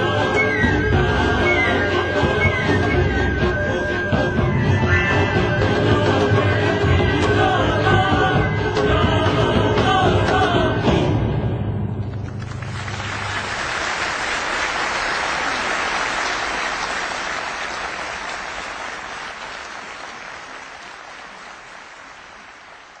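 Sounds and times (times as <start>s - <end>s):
applause: 12.1s - 23.0s.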